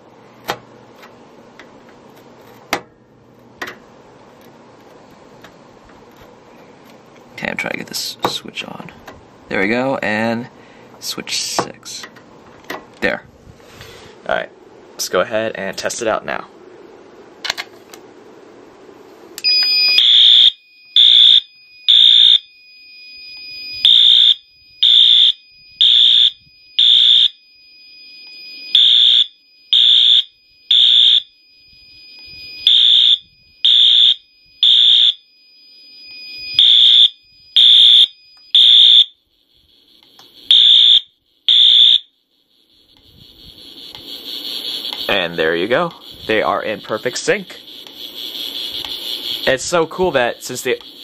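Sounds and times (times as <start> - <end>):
faint high whine: 0.0 - 51.0
fire alarm horn blasts: 19.4 - 51.0.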